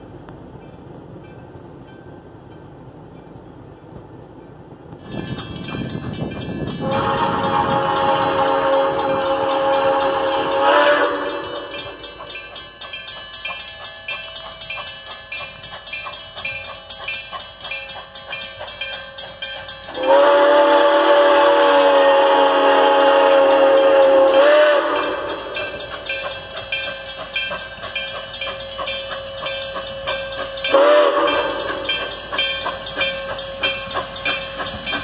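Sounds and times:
steam locomotive running: 0:00.0 - 0:35.0
steam locomotive whistle: 0:06.6 - 0:12.6, 0:19.9 - 0:27.6, 0:28.4 - 0:35.0.

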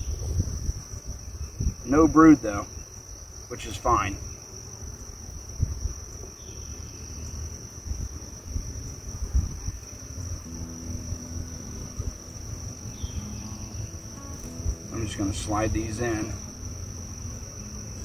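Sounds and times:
insects trilling: 0:00.0 - 0:18.0
low rumble: 0:08.0 - 0:18.0
bee buzzing: 0:09.8 - 0:18.0.

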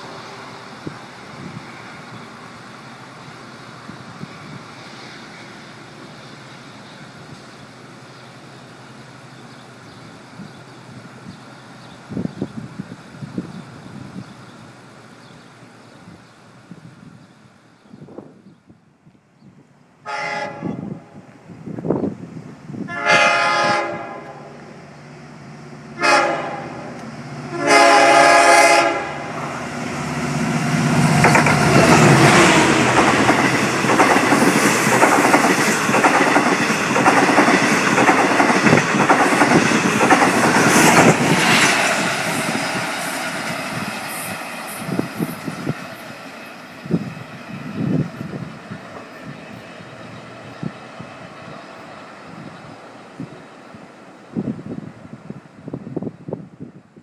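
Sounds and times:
locomotive horn blasts: 0:20.0 - 0:21.0, 0:22.9 - 0:24.5, 0:26.0 - 0:29.3
train wheels clattering: 0:31.1 - 0:45.8.

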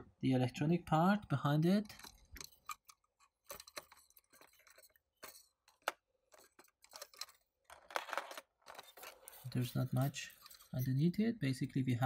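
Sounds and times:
plastic parts clicking and tapping: 0:01.6 - 0:10.8.

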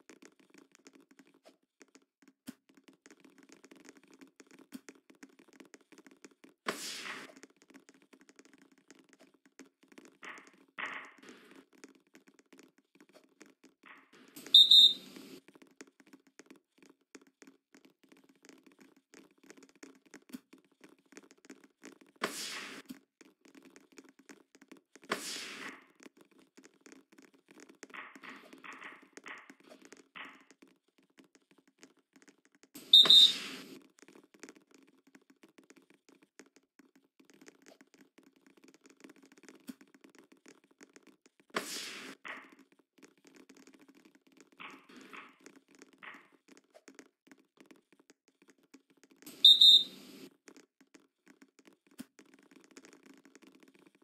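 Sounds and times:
referee's whistle blasts: 0:14.6 - 0:15.0, 0:33.0 - 0:33.5, 0:49.5 - 0:49.9.

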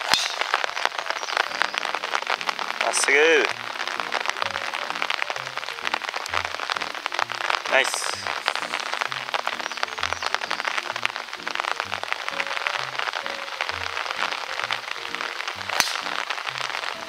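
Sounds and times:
golf club striking ball: 0:00.0 - 0:00.6, 0:15.7 - 0:16.2
heavy rain: 0:00.0 - 0:17.0.

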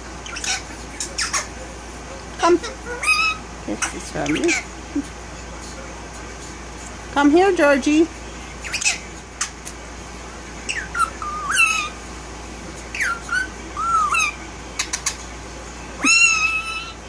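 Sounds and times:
parakeet whistled squawks: 0:00.2 - 0:01.5, 0:02.6 - 0:03.4, 0:08.6 - 0:09.1, 0:10.7 - 0:12.0, 0:12.9 - 0:15.2, 0:16.0 - 0:17.0.

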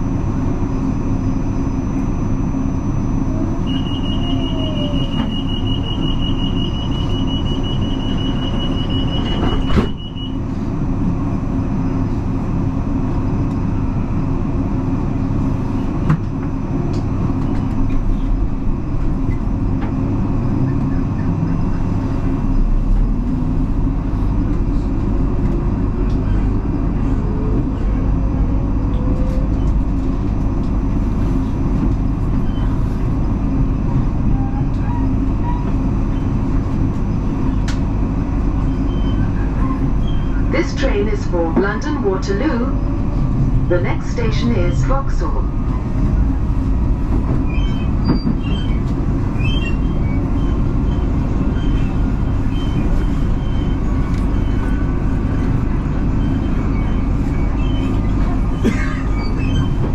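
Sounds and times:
train rumble: 0:00.0 - 0:59.9
pulsing door warning tone: 0:00.6 - 0:10.6, 0:38.3 - 0:43.0, 0:47.4 - 0:59.9
train doors closing: 0:03.6 - 0:10.6, 0:33.9 - 0:59.9.

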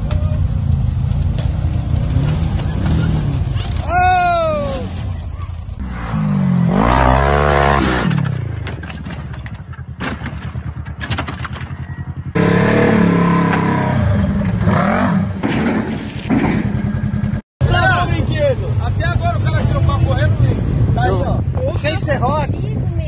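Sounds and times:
off-road engines revving: 0:00.0 - 0:22.8.

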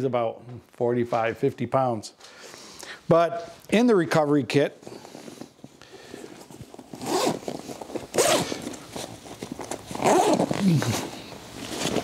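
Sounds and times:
zipper rasping open: 0:06.7 - 0:12.0.

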